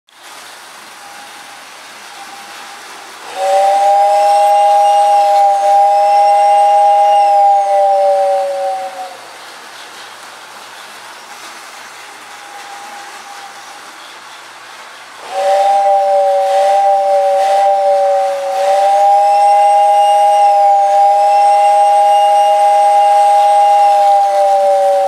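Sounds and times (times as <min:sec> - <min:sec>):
toy train rumbling on track: 0:00.1 - 0:25.0
toy train whistle two-note chord: 0:03.3 - 0:09.2, 0:15.3 - 0:25.0.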